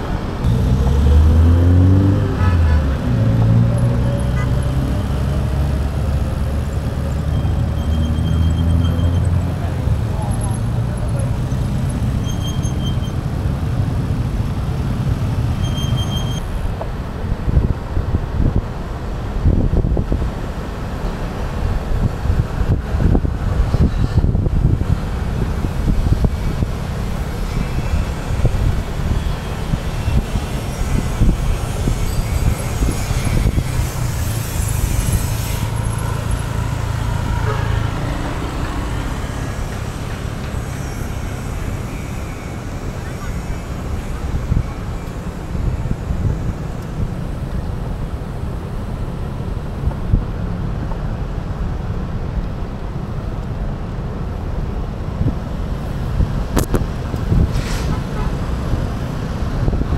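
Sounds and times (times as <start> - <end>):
road traffic rumble: 0.0 - 59.9
wind buffeting microphone: 16.5 - 42.4, 55.0 - 59.9.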